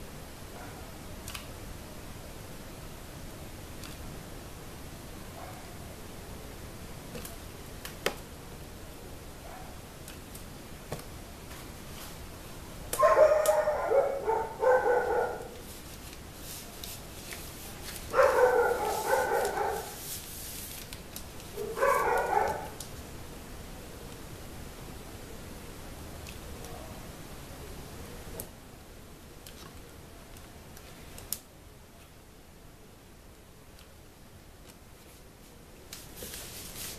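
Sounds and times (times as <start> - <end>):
dog barking: 0.6 - 0.9, 5.4 - 5.8, 9.4 - 9.8, 13.0 - 15.6, 18.1 - 20.0, 21.6 - 22.8.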